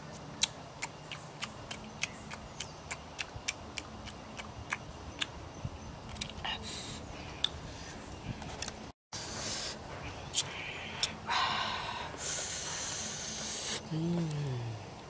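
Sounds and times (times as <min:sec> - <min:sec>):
mouth smacking clicks: 0:00.1 - 0:05.3, 0:10.3 - 0:11.2.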